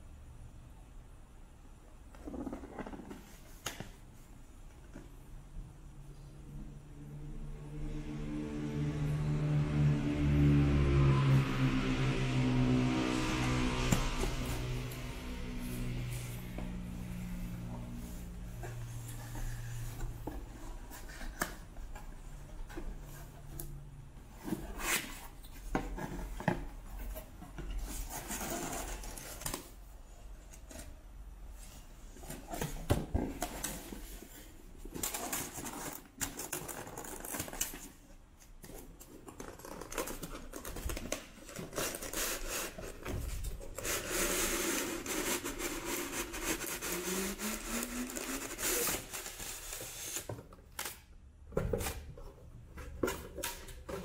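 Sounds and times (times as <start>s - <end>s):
cardboard rustling and scraping: 2.2s - 4.3s, 13.8s - 50.5s
foam rubbing and squeaking: 41.6s - 50.3s.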